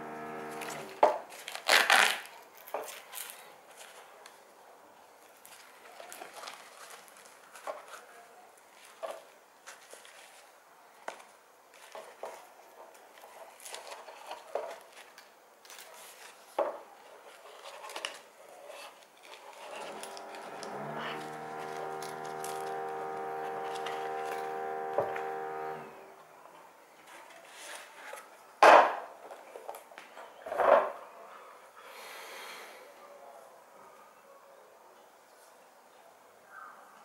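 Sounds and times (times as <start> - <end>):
steady hum: 0.0 - 1.0, 19.8 - 26.2
packaging rustling and clicks: 13.1 - 16.5, 19.0 - 25.3.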